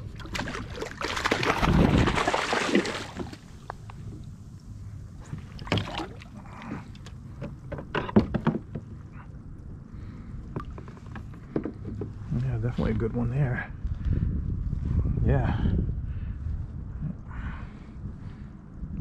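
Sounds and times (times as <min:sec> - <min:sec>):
fish splashing at surface: 0:00.2 - 0:03.4
knocks and taps on kayak: 0:07.4 - 0:08.9, 0:10.5 - 0:12.2.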